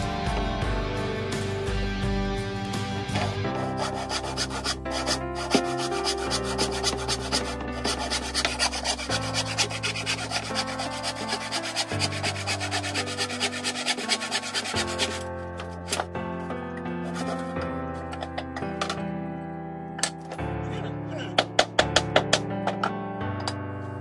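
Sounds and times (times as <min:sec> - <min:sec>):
background music with held chords: 0:00.0 - 0:24.0
handsaw cutting wood: 0:03.1 - 0:16.1, 0:17.0 - 0:17.7.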